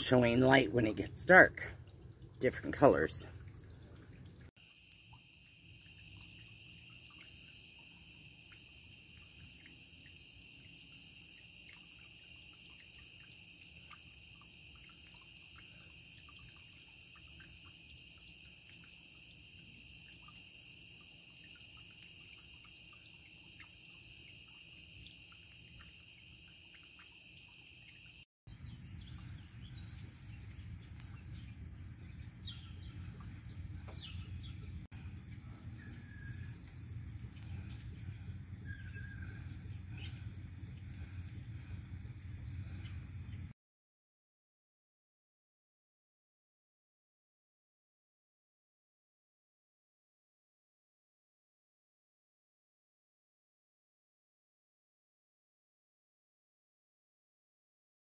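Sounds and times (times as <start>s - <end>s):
fountain splashing and dripping: 0.0s - 28.2s
night insects trilling: 0.0s - 43.5s
bird chirps: 28.5s - 34.9s, 38.6s - 40.3s.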